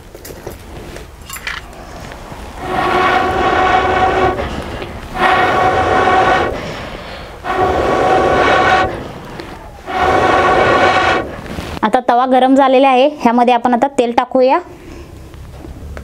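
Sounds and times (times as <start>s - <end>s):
blowpipe hooting tone: 1.7s - 11.8s.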